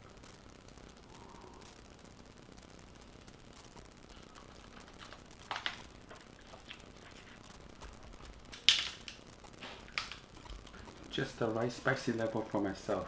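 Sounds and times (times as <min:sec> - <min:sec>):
crawfish shells cracking: 0:03.6 - 0:12.6.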